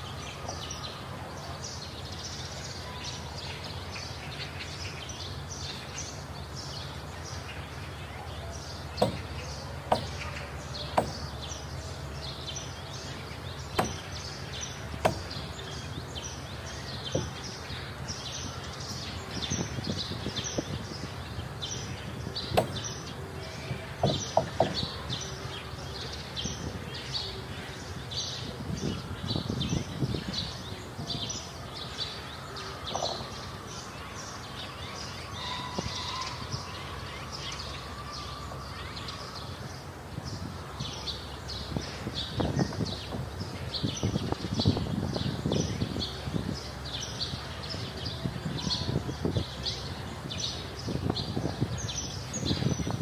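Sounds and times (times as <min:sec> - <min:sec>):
hammer knocking on wood: 0:09.0 - 0:09.3, 0:09.9 - 0:10.2, 0:10.9 - 0:11.3, 0:13.8 - 0:14.1, 0:15.0 - 0:15.4, 0:22.5 - 0:22.8, 0:24.0 - 0:24.8.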